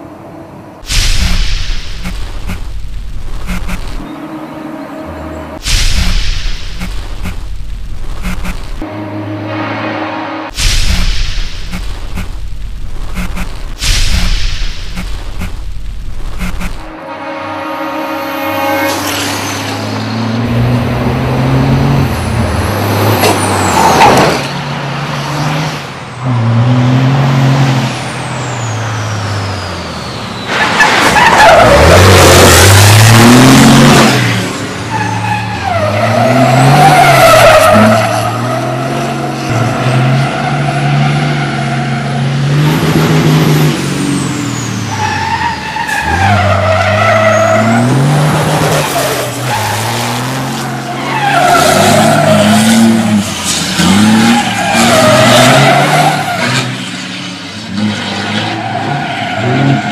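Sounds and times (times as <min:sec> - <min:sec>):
tyres squealing and skidding: 0:16.4 - 0:42.8, 0:43.6 - 0:59.9
diesel truck engine revving: 0:19.7 - 0:59.9.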